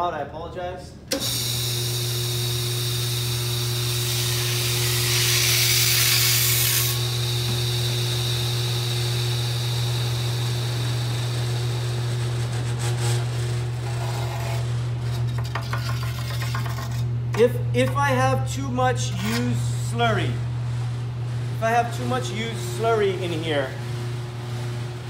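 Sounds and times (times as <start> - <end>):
glass grinder motor hum: 1.3 - 17.1
metal knife scraping grit: 13.8 - 17.2, 19.1 - 19.6.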